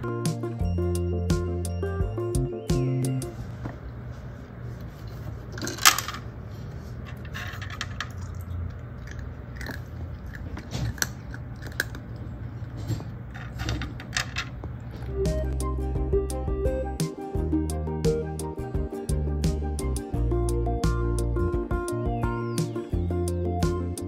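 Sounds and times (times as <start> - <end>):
cat crunching kibble: 7.9 - 14.9.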